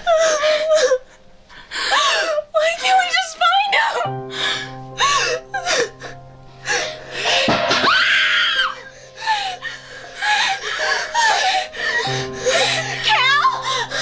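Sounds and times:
wavering cry: 7.7 - 14.0
women gasping and panting: 8.8 - 14.0.

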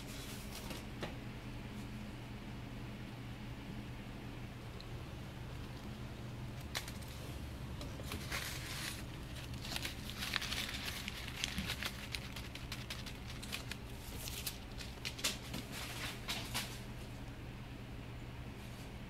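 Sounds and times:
paper receipt crinkling: 6.6 - 7.2, 7.8 - 16.8.

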